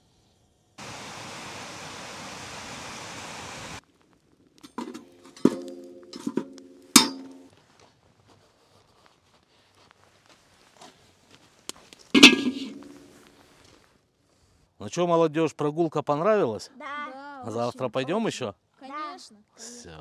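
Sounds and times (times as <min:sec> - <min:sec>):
ringing metal clanks: 0:04.8 - 0:07.5, 0:12.2 - 0:13.1.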